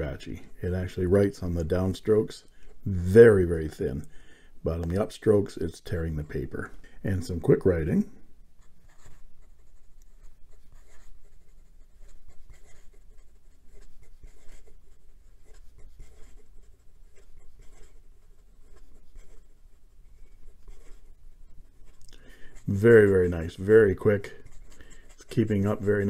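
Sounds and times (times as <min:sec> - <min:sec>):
pen scratching on paper: 0:08.6 - 0:26.0.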